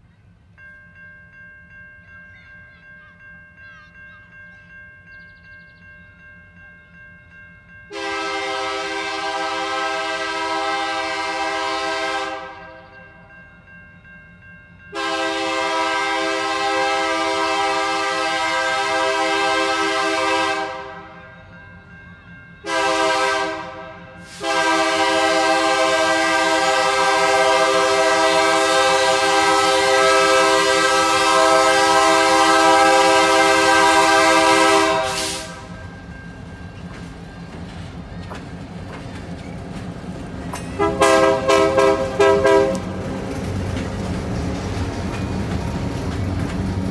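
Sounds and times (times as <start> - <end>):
train rumbling: 0.0 - 46.9
locomotive air horn blasts: 7.9 - 12.8, 14.9 - 21.1, 22.6 - 35.8, 40.8 - 42.9.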